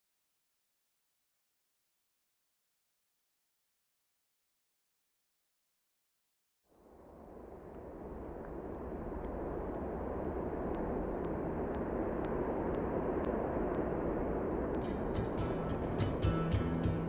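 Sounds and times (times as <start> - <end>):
steady rushing noise: 6.7 - 17.0
faint high ticks: 7.7 - 13.9.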